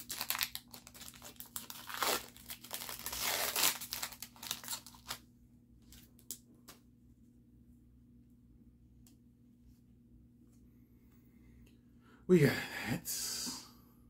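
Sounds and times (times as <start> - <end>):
foil wrapper tearing and crinkling: 0.0 - 5.2.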